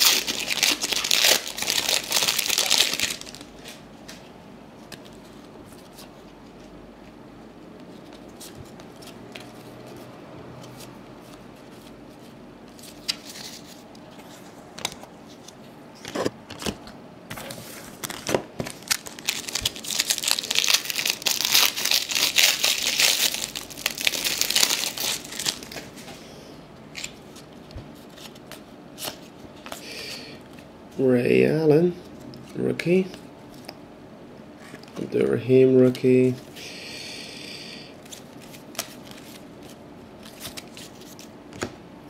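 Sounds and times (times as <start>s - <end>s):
card pack wrapper tearing: 0.0s - 3.5s, 18.0s - 25.9s.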